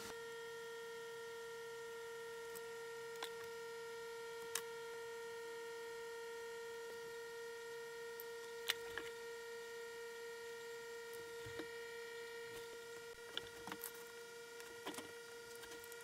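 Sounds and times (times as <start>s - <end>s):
pitched electrical hum: 0.0s - 16.0s.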